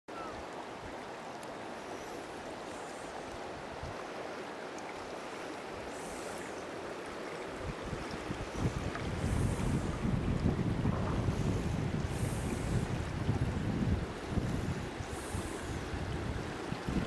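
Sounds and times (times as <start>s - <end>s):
river water rushing: 0.1s - 17.0s
wind buffeting microphone: 7.5s - 17.0s.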